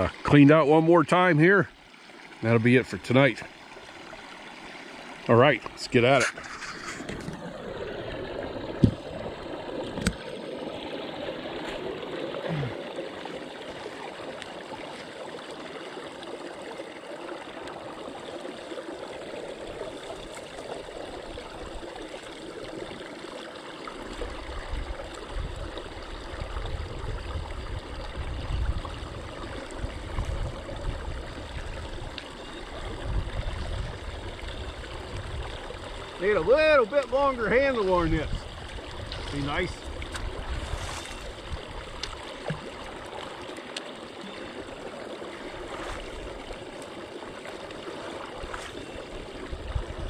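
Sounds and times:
water rushing down drain pipe: 0.0s - 50.0s
tool rumbling and sloshing in water: 5.6s - 10.4s, 35.4s - 43.5s, 44.2s - 50.0s.

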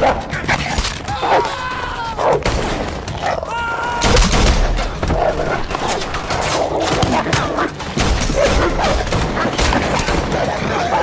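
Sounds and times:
gunshots: 2.4s - 3.2s, 4.0s - 11.0s.

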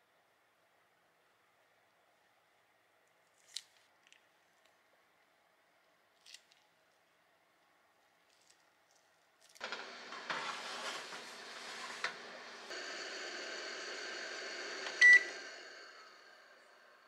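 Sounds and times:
microwave oven hum: 9.6s - 17.0s
short loud beep: 15.0s - 15.4s.

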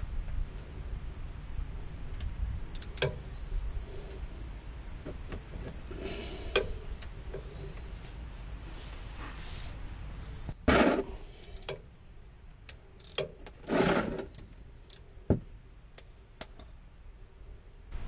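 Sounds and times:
ratchet wrench clicks: 2.2s - 3.2s, 11.4s - 11.8s, 12.7s - 13.6s, 14.2s - 15.0s.

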